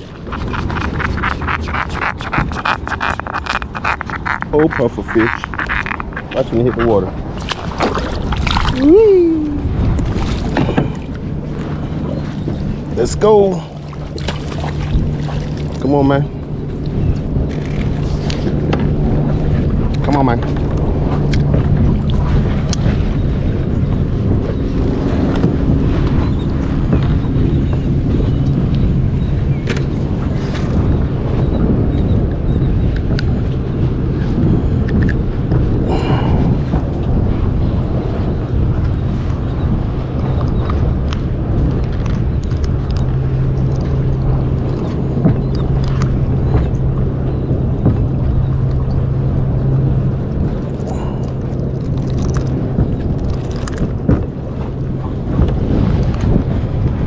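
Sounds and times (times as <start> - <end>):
low hum: 0.0 - 57.0
water noise: 0.0 - 57.0
wind buffeting microphone: 0.0 - 57.0.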